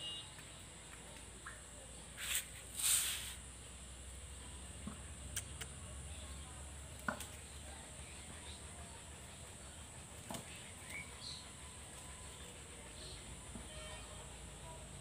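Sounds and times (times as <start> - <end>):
steady high hiss: 1.7 - 4.3
faint bird chirps: 10.5 - 13.9.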